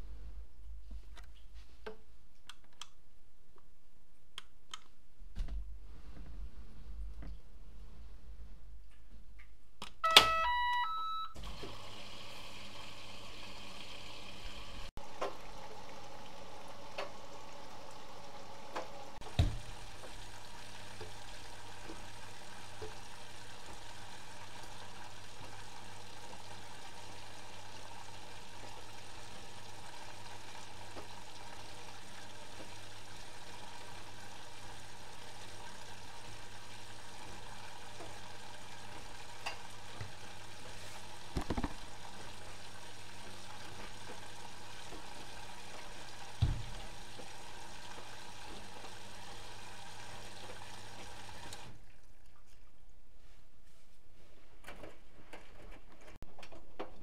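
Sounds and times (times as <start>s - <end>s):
washing machine electronic beeps: 10.0s - 11.9s
clicks and thump: 41.4s - 41.8s.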